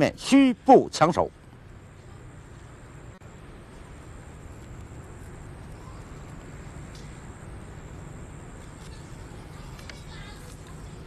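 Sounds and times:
background rumble and hiss: 0:00.0 - 0:11.0
faint high-pitched whine: 0:00.0 - 0:11.0
faint ticks: 0:04.5 - 0:07.2.

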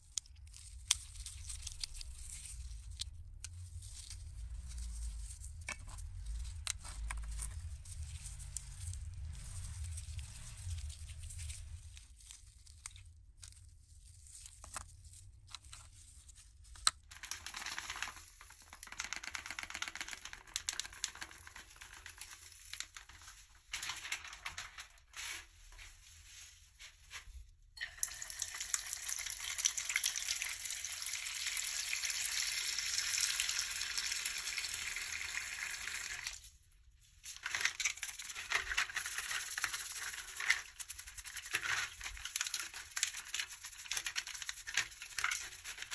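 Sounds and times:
small parts clicking and scraping: 0:00.0 - 0:24.1, 0:35.6 - 0:45.9
water running into plastic tub: 0:27.8 - 0:36.4.

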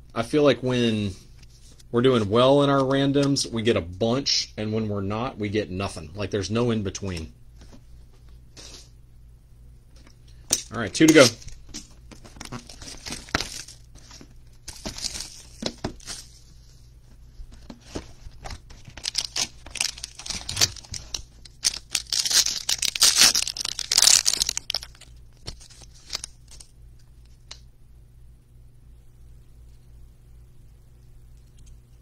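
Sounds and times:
plastic wrap crinkling and tearing: 0:12.2 - 0:16.4, 0:18.5 - 0:26.7
cards handled: 0:17.5 - 0:27.6.

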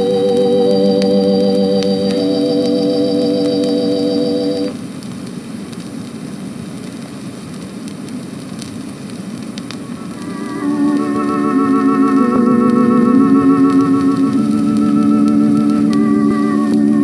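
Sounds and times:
organ holding a wavering chord: 0:00.0 - 0:04.7, 0:10.2 - 0:17.0
old recording hiss and crackle: 0:00.0 - 0:17.0.

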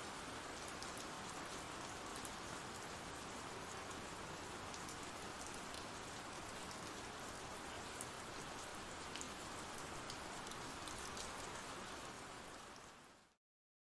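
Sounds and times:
rain falling: 0:00.0 - 0:13.4.

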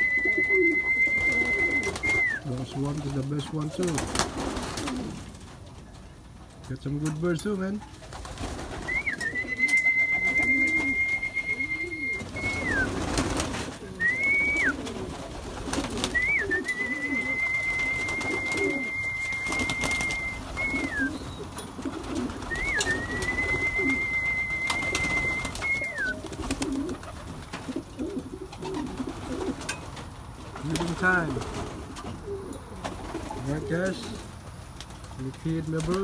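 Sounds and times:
high steady whistle: 0:00.0 - 0:02.4, 0:08.9 - 0:12.9, 0:16.2 - 0:21.2, 0:22.5 - 0:26.2
pigeons cooing: 0:00.0 - 0:06.6, 0:07.8 - 0:34.6.

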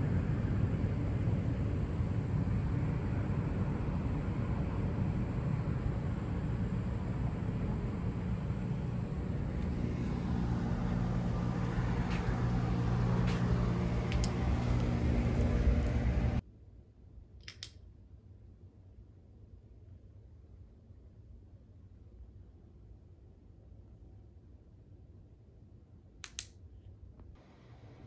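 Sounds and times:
air conditioner unit humming: 0:00.0 - 0:16.4
light clicks: 0:17.4 - 0:17.8.

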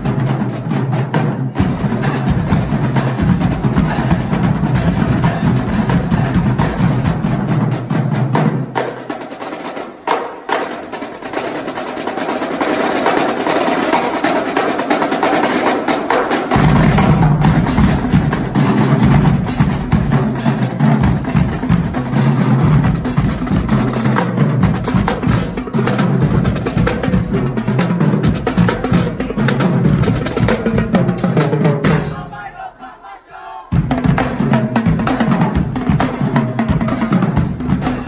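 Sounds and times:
snare and tenor drums rattling: 0:00.0 - 0:32.3, 0:33.8 - 0:38.0
bass drums beating: 0:01.5 - 0:08.0, 0:16.6 - 0:32.5, 0:33.7 - 0:38.0.

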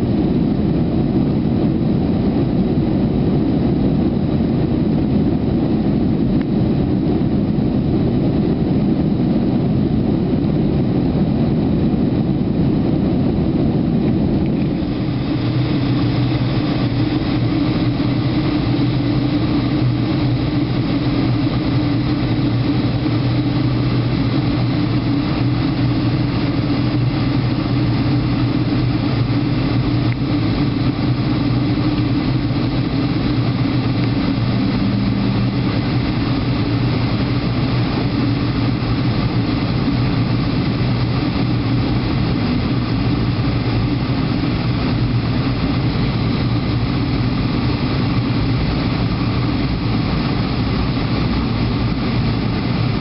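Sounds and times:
jet cabin engine and airflow noise: 0:00.0 - 0:53.0.

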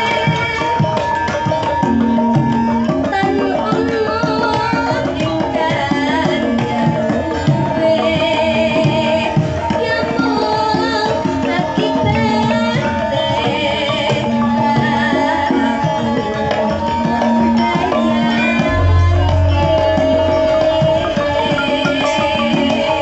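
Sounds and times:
woman singing with vibrato: 0:02.6 - 0:23.0
gamelan ensemble playing: 0:13.9 - 0:23.0
hand drum strokes: 0:16.4 - 0:23.0.

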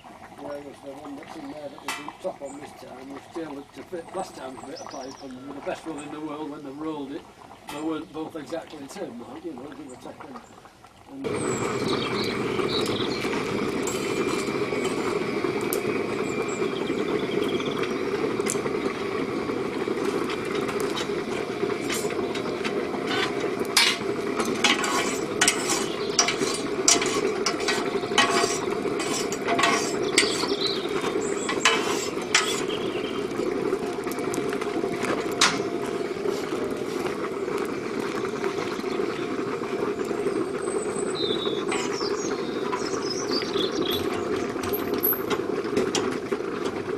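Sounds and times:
electric blower running: 0:11.2 - 0:37.5
steel bar clinking in fire: 0:23.1 - 0:32.8.

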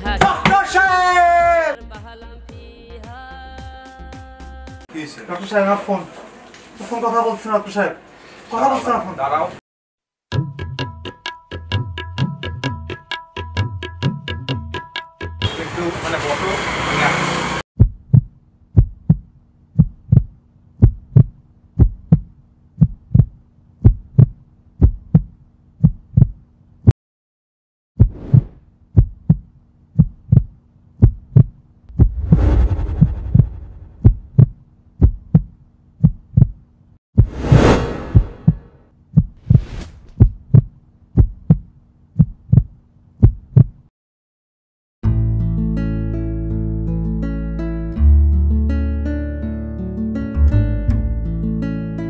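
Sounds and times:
heartbeat thumps: 0:17.8 - 0:26.4, 0:28.0 - 0:36.6, 0:38.1 - 0:43.8
whoosh: 0:31.9 - 0:34.4, 0:37.2 - 0:38.7
acoustic guitar music: 0:45.2 - 0:52.0.

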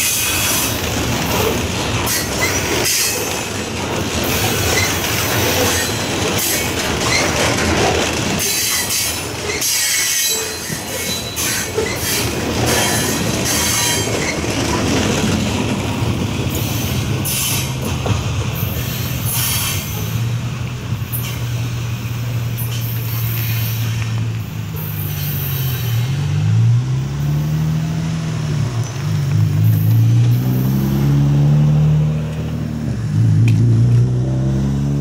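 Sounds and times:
train wheel squeal: 0:00.0 - 0:03.6, 0:04.2 - 0:07.5, 0:08.4 - 0:14.8, 0:16.5 - 0:17.8, 0:18.6 - 0:20.3, 0:22.6 - 0:26.4
road vehicles pulling away: 0:18.6 - 0:35.0.

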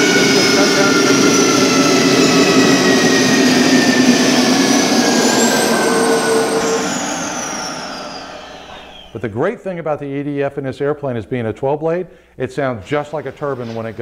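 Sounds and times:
simulated jet turbine whine: 0:00.0 - 0:09.3.

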